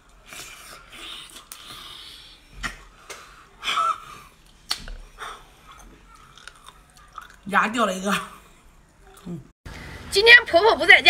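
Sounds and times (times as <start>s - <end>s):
slurping and sucking: 0.1s - 2.8s
wet chewing clicks and squelches: 5.7s - 7.5s.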